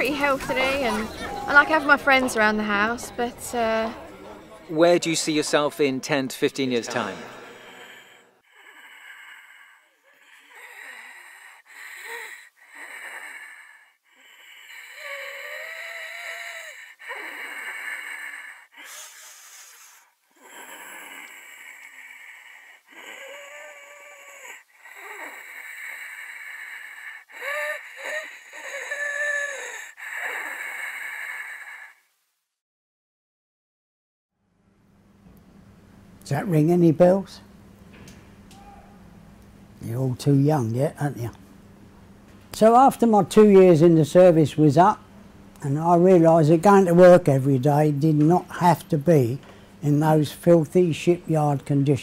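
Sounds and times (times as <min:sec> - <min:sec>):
woman wheezing breathing: 0:07.0 - 0:32.1.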